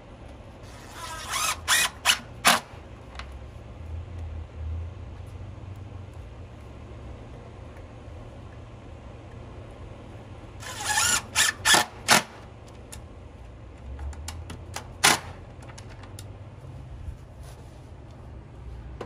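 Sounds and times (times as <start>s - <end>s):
cordless drill driving screws: 0.7s - 2.7s, 10.6s - 12.4s.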